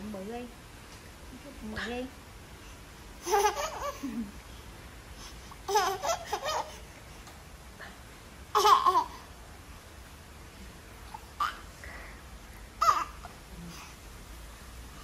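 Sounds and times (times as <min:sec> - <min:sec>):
baby laughing: 0:03.2 - 0:04.3, 0:05.6 - 0:06.9, 0:08.5 - 0:09.3, 0:12.8 - 0:13.4.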